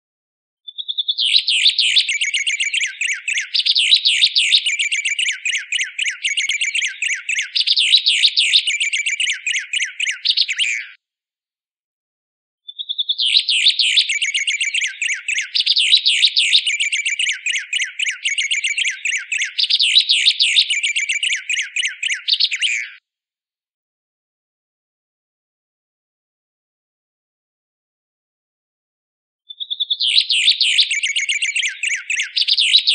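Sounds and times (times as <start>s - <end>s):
bird chattering song: 0.7s - 11.0s, 12.7s - 23.0s, 29.5s - 32.9s
bird whistle: 0.7s - 11.0s, 12.7s - 23.0s, 29.5s - 32.9s.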